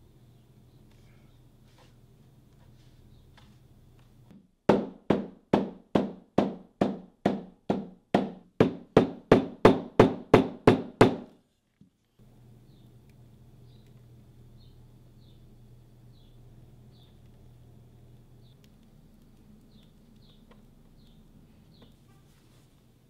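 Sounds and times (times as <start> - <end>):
hammer striking leather: 4.3 - 11.3.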